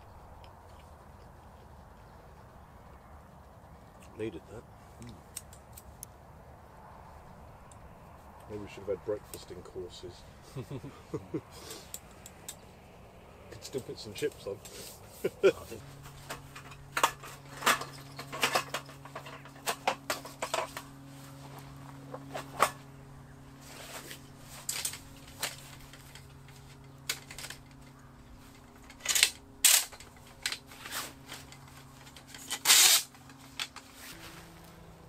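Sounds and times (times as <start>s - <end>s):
faint low hum: 0.0s - 35.0s
camp gear clattering: 13.6s - 22.8s, 23.6s - 34.6s.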